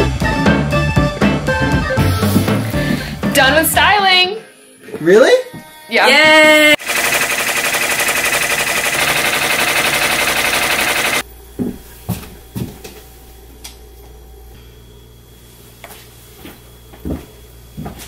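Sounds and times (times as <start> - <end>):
embroidery machine stitching: 6.8 - 11.2.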